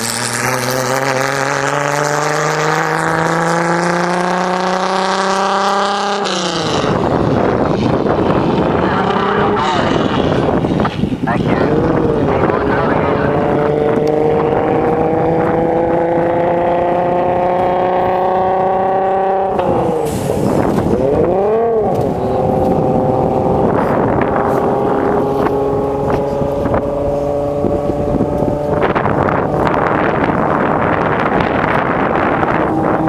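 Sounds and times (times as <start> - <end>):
race car engine at full throttle: 0.0 - 33.0
wind buffeting microphone: 0.0 - 33.0.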